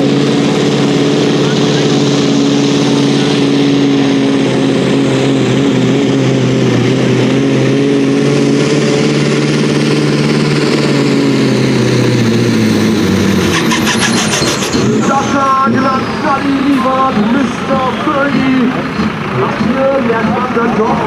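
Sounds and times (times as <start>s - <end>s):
diesel engine running under load: 0.0s - 21.0s.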